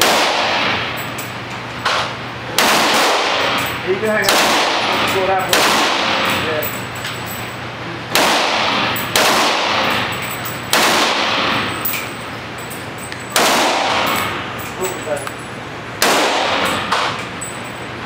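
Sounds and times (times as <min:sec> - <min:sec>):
rifle shots echoing indoors: 0:00.0 - 0:01.0, 0:01.9 - 0:06.7, 0:08.1 - 0:11.9, 0:13.3 - 0:14.4, 0:16.0 - 0:17.2.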